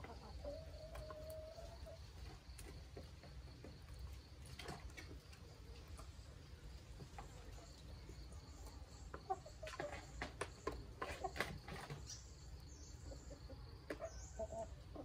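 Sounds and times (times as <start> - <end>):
chickens clucking: 0.0 - 15.0
beaks pecking in plastic basin: 9.2 - 12.2.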